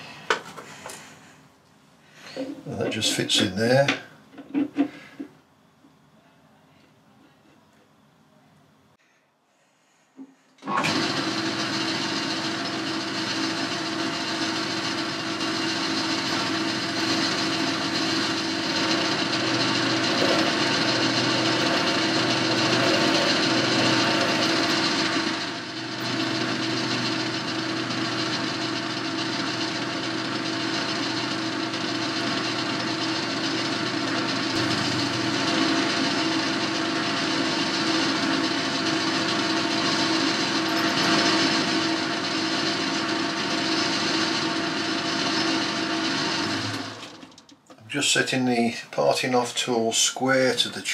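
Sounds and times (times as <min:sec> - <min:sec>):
drill cutting into workpiece: 0:10.6 - 0:47.1
lathe running with a hum: 0:10.6 - 0:47.5.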